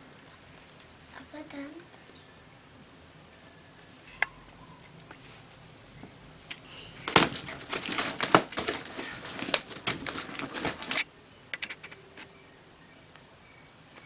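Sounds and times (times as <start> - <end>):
packaging crinkling: 7.0 - 12.0.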